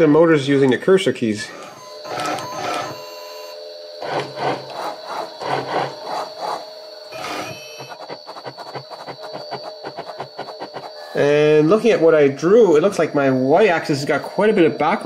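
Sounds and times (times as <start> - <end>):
motors whining: 1.4 - 11.3
pen scratching on paper: 4.0 - 6.7, 7.8 - 11.0.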